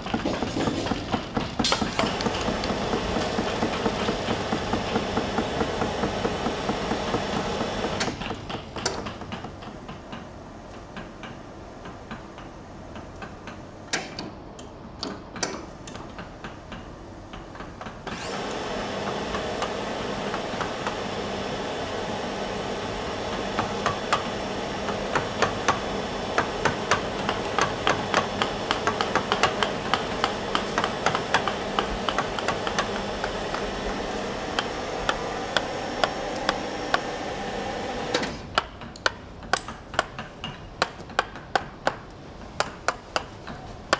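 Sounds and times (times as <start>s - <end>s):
machine drone: 18.2s - 38.4s
chisel taps: 26.4s - 34.0s, 34.6s - 37.1s.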